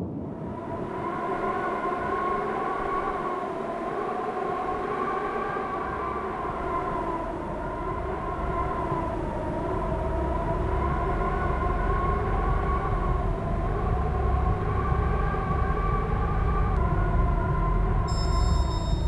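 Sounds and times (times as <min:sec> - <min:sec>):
eerie wavering drone: 0:00.3 - 0:19.0
low rumble: 0:07.9 - 0:19.0.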